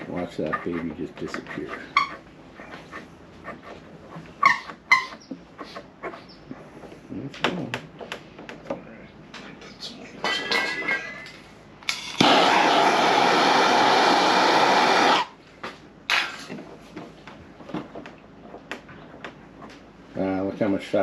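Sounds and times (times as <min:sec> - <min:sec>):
heat gun blowing: 0:12.1 - 0:15.4.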